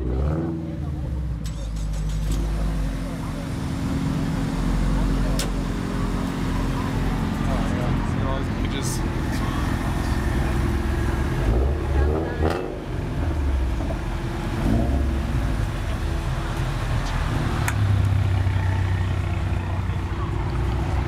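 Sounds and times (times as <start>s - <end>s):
car engines idling: 0.0s - 21.0s
loud engine drone: 2.3s - 18.4s
engine revving: 9.6s - 16.0s.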